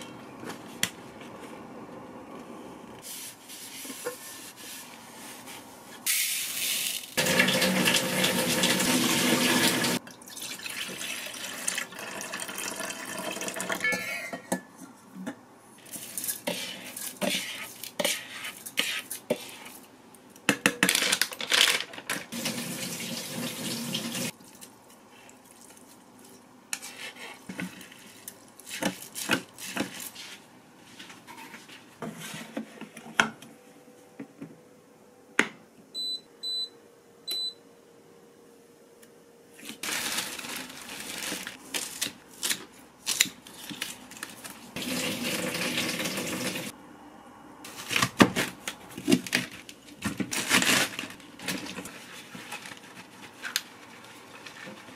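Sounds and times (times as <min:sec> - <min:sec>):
water running from tap: 0:07.2 - 0:13.8, 0:22.4 - 0:24.3, 0:44.8 - 0:46.7.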